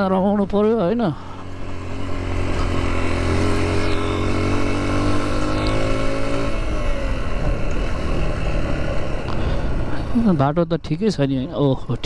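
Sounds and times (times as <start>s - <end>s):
motorcycle engine pulling: 1.2s - 10.4s.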